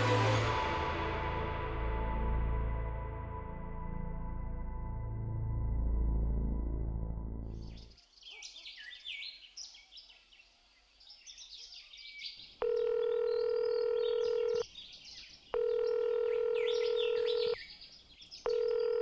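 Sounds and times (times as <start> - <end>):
birds chirping and singing: 7.6 - 12.5
telephone calling tone: 12.6 - 14.6, 15.6 - 17.6, 18.5 - 19.0.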